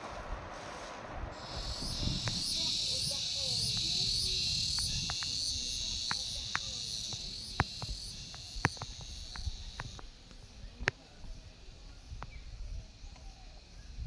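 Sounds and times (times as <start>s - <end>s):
low wind rumble: 0.0s - 13.1s
sharp clicks: 1.4s - 11.0s
insects chirring: 1.4s - 14.0s.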